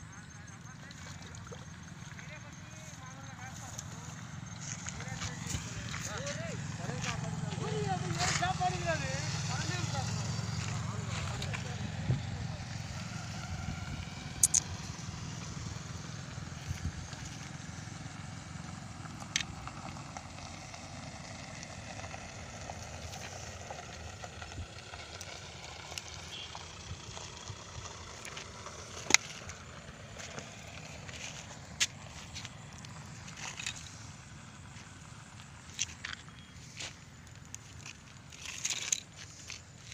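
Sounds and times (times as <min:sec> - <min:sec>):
low outdoor rumble: 0:00.0 - 0:39.9
sharp clicks: 0:14.4 - 0:14.7.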